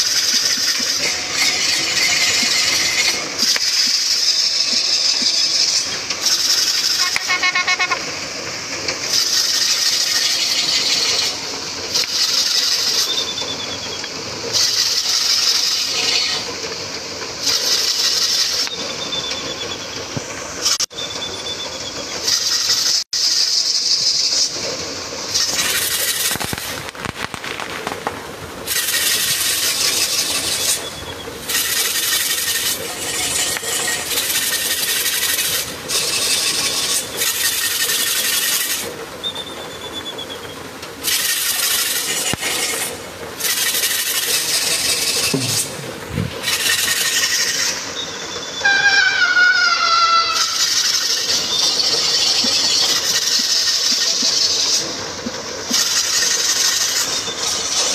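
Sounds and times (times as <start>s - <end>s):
wooden beam grinding and creaking: 0.0s - 7.0s, 25.3s - 38.9s, 41.0s - 47.8s
high squeaks: 0.0s - 8.4s, 9.0s - 16.8s, 17.4s - 27.9s, 28.7s - 55.0s.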